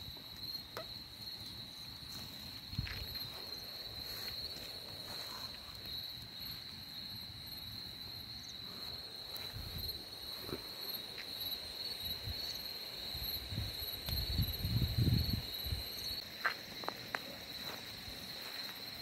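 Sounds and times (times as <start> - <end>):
night insects trilling: 0.0 - 19.0.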